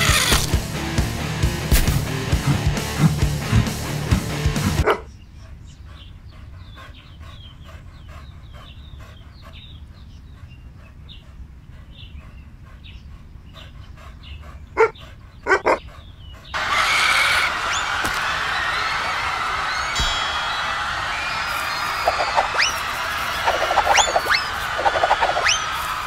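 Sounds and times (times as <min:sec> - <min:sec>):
small birds chirping: 0:04.8 - 0:17.9, 0:21.4 - 0:26.0.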